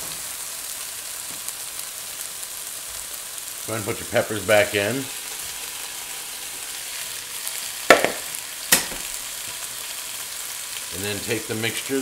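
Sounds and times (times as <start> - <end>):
meat sizzling in a skillet: 0.0 - 12.0
sharp knocks: 7.9 - 9.0.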